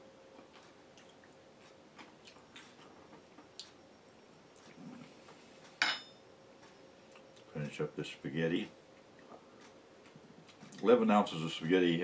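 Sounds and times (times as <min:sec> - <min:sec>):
soft chewing: 0:00.3 - 0:03.8, 0:04.5 - 0:05.8, 0:06.6 - 0:07.6, 0:08.9 - 0:10.9.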